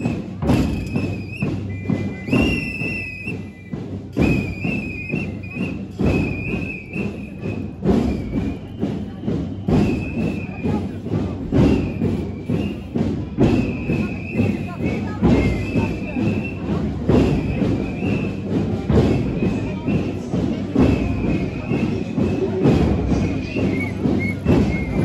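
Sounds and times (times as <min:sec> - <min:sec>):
drum thumps: 0:00.3 - 0:03.4.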